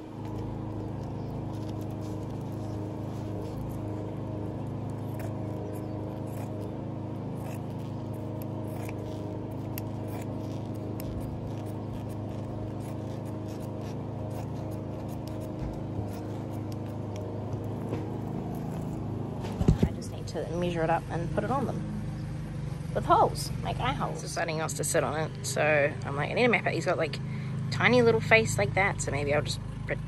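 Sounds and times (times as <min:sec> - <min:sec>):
scissors cutting fabric: 0:00.0 - 0:20.3
steady low hum: 0:00.0 - 0:30.0.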